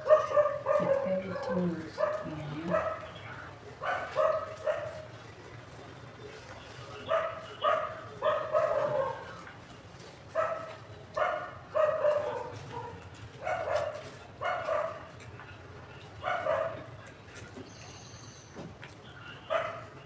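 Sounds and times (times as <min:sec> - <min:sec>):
dog barking: 0:00.0 - 0:03.2, 0:03.8 - 0:05.1, 0:07.0 - 0:09.5, 0:10.3 - 0:15.2, 0:16.2 - 0:17.0, 0:19.4 - 0:20.0.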